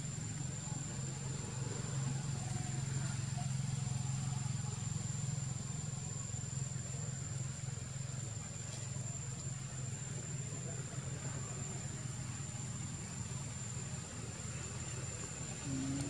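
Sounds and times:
low motor hum: 13.1 - 16.0.

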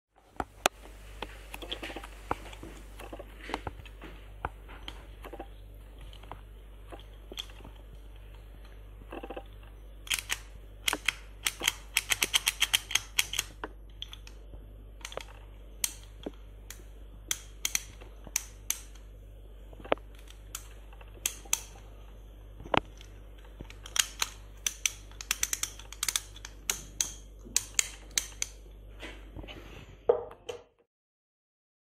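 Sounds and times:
hand tally counter clicking: 10.1 - 13.5.

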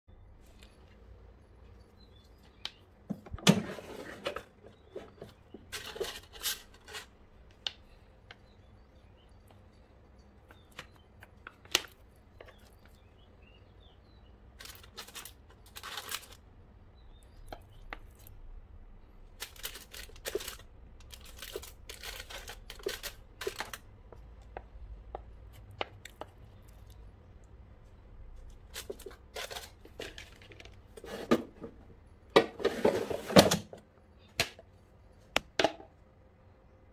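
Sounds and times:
aluminium foil crinkling: 14.6 - 16.5, 19.2 - 23.9, 28.4 - 30.8.

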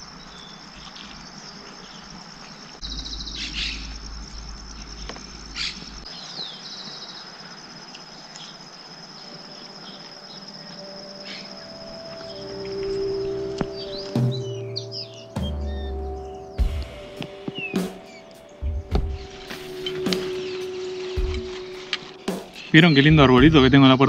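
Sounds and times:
bird chirps: 0.0 - 24.0
insects trilling: 0.0 - 24.0
low rumble: 2.8 - 6.1.

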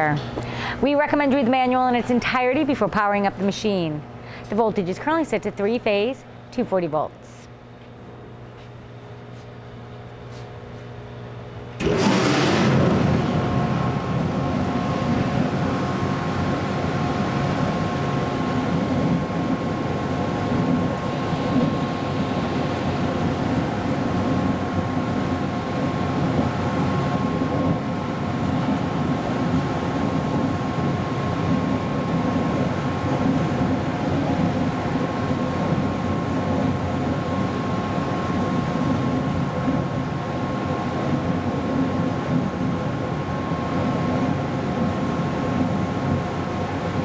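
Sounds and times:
water churning in tank: 11.8 - 34.9.

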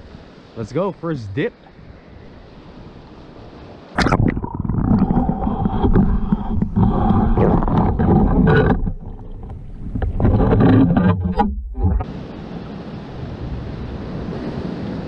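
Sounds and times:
muffled underwater water churning: 2.8 - 12.3.

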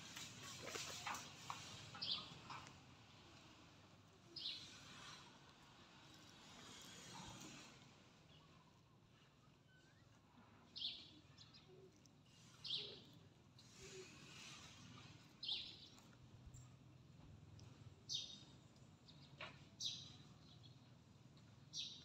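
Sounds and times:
faint outdoor background noise: 0.0 - 22.0
bird chirping: 10.8 - 16.7, 21.7 - 22.0.

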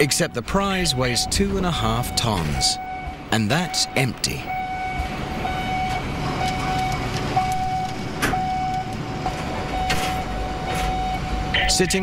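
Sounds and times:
steady high tone: 0.0 - 4.8
crane machinery rumbling: 0.0 - 12.0.

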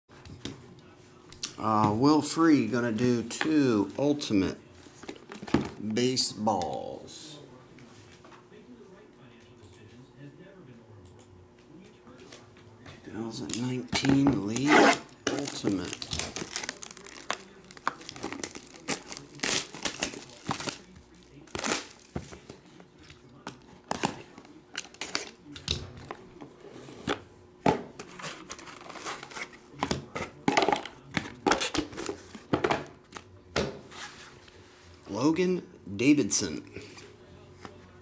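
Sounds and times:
plastic shrink wrap tearing: 14.4 - 22.1.

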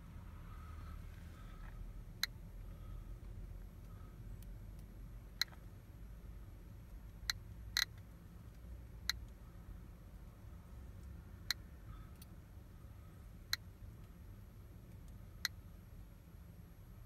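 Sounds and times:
low steady rumble: 0.0 - 17.0
geiger counter clicks: 7.1 - 8.1.

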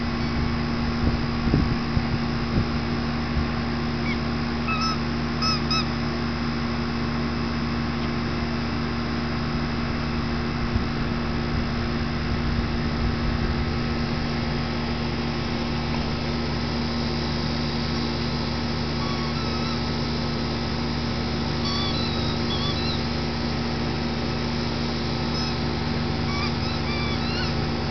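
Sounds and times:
steady mechanical hum: 0.0 - 27.9
short high chirps: 21.6 - 23.0.

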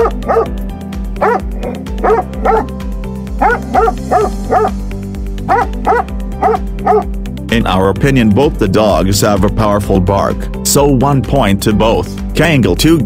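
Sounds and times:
dog barking: 0.0 - 0.5, 1.2 - 2.7, 3.4 - 4.8, 5.5 - 7.1
music with steady beat: 0.0 - 8.6.

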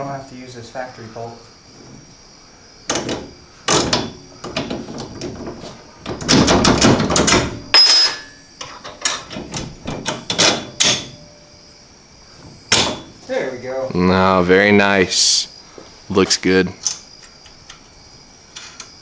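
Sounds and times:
metal bolt clanking and rattling: 2.9 - 11.3.

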